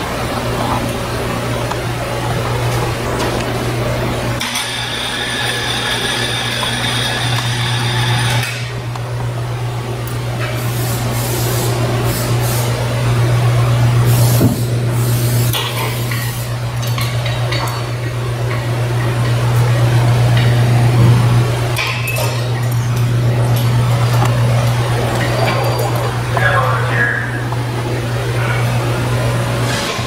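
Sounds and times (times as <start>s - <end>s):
low hum of shop machinery: 0.0s - 30.0s
metal tools clinking: 21.8s - 23.0s.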